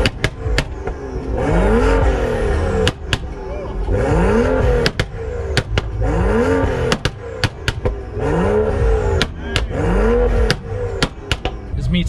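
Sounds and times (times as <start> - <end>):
exhaust pops and cracks: 0.0 - 1.1, 4.8 - 6.0, 6.9 - 8.0, 10.4 - 11.6
car engine revving: 0.0 - 12.0.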